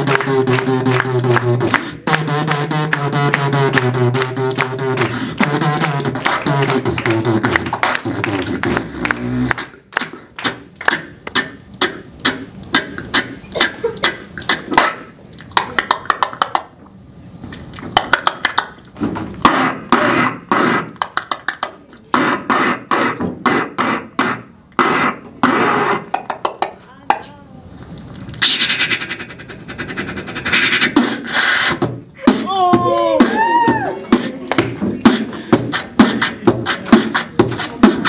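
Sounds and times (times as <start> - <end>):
person beatboxing into microphone: 0.0 - 16.8, 17.4 - 38.0.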